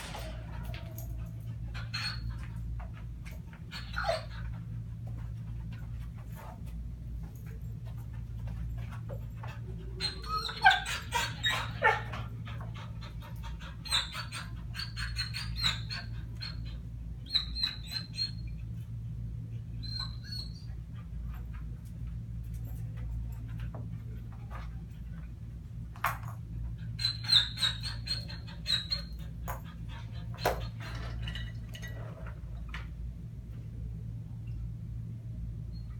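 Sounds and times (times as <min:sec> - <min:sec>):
dog whining: 0:00.0 - 0:02.8, 0:03.7 - 0:04.8, 0:09.4 - 0:18.5, 0:19.8 - 0:20.8, 0:26.8 - 0:31.5
steady low hum: 0:00.0 - 0:35.9.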